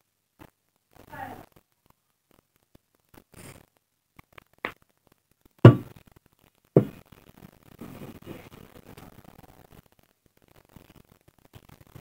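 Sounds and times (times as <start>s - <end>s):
dull knocks of objects set down: 5.7s - 5.9s.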